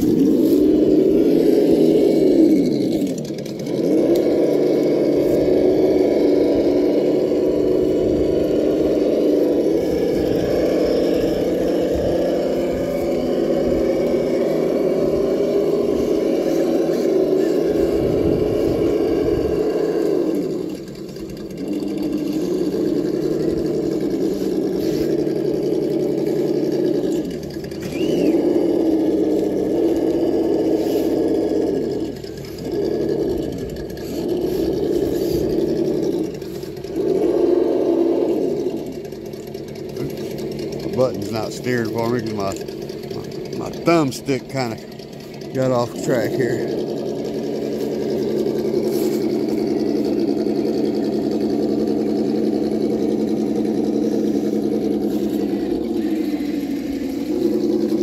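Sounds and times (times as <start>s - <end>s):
rc truck motor whining: 0.0s - 58.0s.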